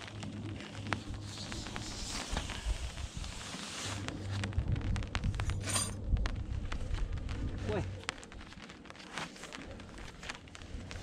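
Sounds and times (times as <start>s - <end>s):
rustling: 0.0s - 11.0s
wind on microphone: 0.3s - 8.7s.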